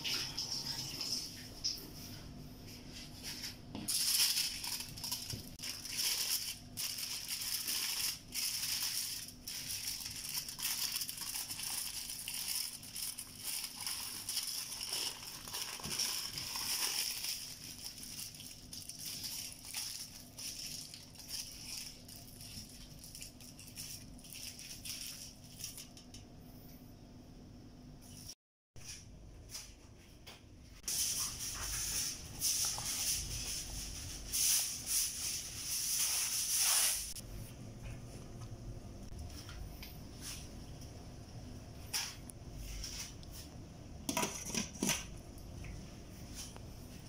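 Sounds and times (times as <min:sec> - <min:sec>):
aluminium foil crinkling: 0:03.8 - 0:26.2, 0:30.9 - 0:37.2.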